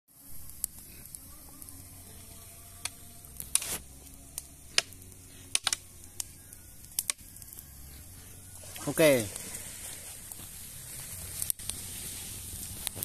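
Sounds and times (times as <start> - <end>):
bamboo poles clicking and knocking: 4.7 - 5.8.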